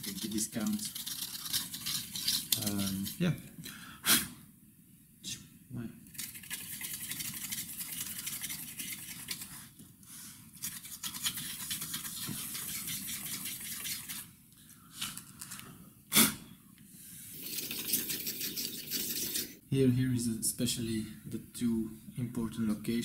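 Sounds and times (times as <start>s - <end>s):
toothbrush scrubbing: 0.0s - 3.2s, 6.1s - 9.8s, 10.5s - 14.3s, 17.3s - 19.6s.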